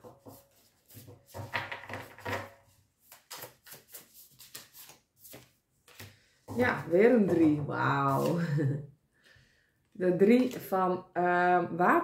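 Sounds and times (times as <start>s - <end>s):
cards being shuffled: 3.0s - 6.7s.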